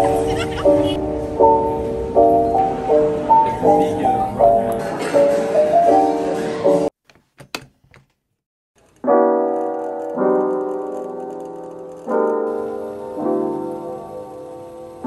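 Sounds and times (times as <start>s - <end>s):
background music: 0.0s - 6.9s
slow piano chords: 0.0s - 6.9s, 9.0s - 15.0s.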